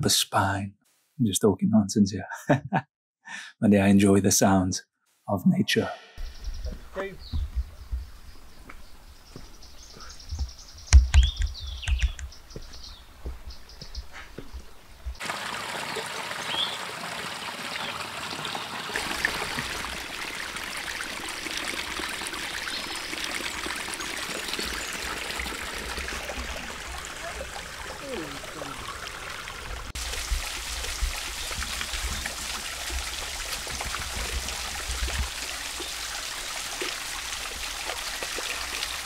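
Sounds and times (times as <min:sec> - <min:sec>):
low thumps: 0:06.2 - 0:08.3
birds calling: 0:06.2 - 0:18.1, 0:19.8 - 0:30.0
stream trickling over rocks: 0:15.2 - 0:39.0.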